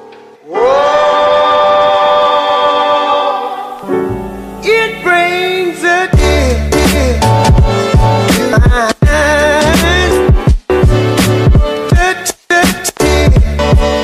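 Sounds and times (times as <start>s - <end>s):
bass line: 3.9s - 12.1s, 13.0s - 14.0s
heavy drum beats: 6.2s - 14.0s.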